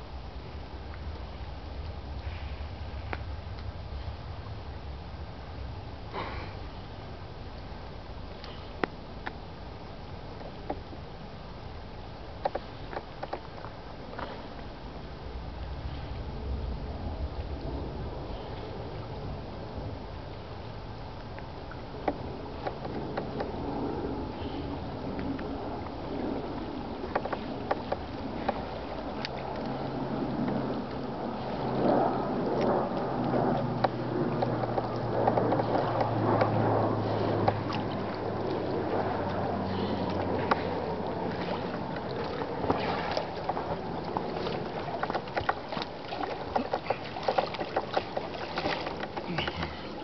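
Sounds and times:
water splashing from swimming: 24.4s - 50.0s.

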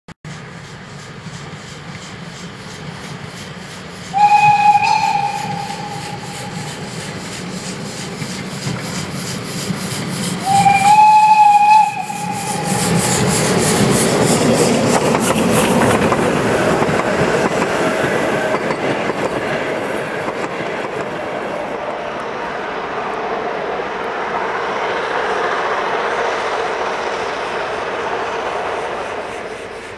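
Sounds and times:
steam locomotive exhaust beats: 0.3s - 29.9s
steam whistle: 4.1s - 6.9s, 10.4s - 13.3s.

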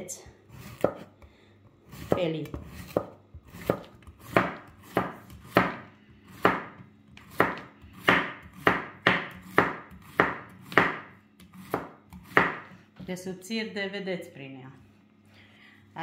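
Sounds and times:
knife slicing on wooden board: 0.5s - 1.1s, 1.8s - 6.6s.

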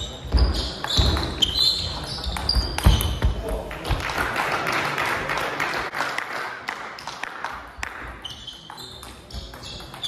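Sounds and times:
sneakers squeaking on floor: 0.0s - 3.5s, 7.9s - 10.0s.

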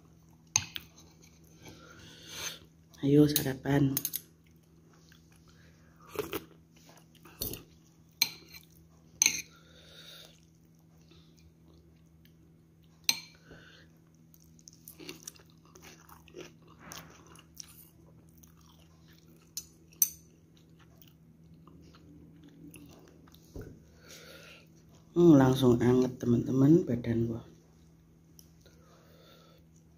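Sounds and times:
person chewing: 4.4s - 25.1s.

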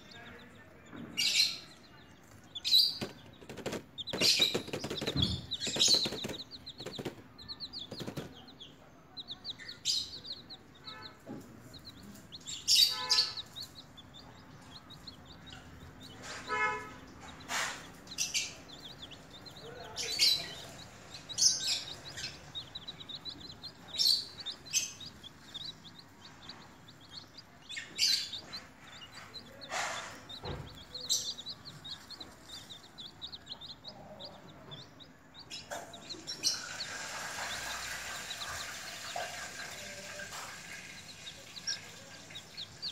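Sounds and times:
baby chicks peeping: 0.0s - 42.9s.

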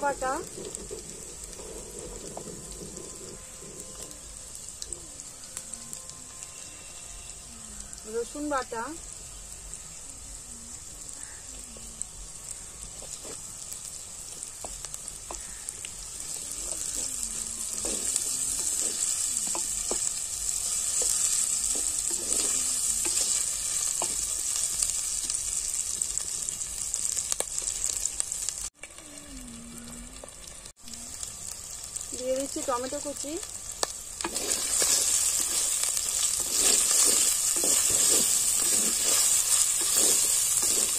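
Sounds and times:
wooden spatula scraping a pot: 0.0s - 4.5s, 16.2s - 24.9s, 34.2s - 40.9s
onions sizzling in hot oil: 0.0s - 40.9s.

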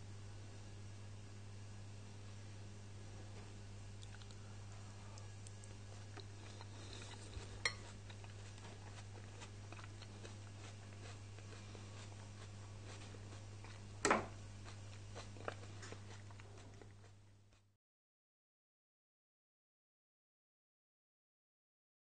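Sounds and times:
fork tapping on glass dish: 7.6s - 7.8s.

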